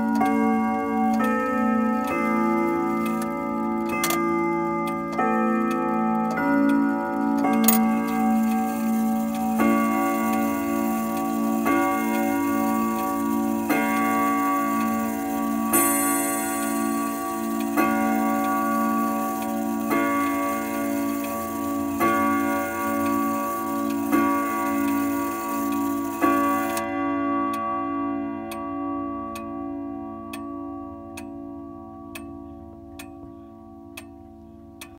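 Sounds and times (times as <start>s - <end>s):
clock chime rods striking: 0.0s - 27.2s
clock ticking: 2.0s - 26.9s.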